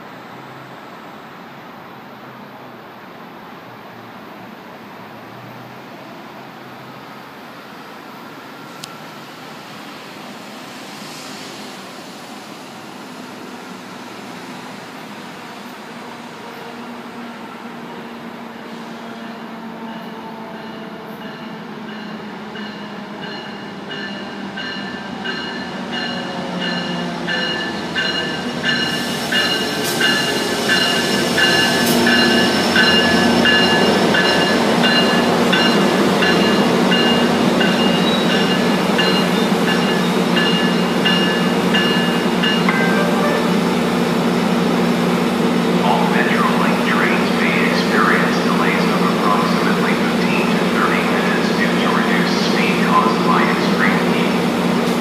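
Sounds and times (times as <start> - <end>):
diesel locomotive engine hum: 0.0 - 55.0
train bell ringing: 19.2 - 44.2.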